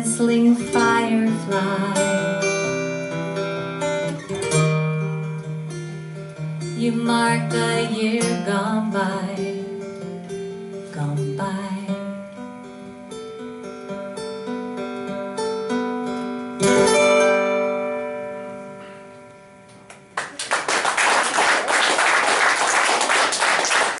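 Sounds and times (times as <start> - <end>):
audience applause: 20.2 - 24.0.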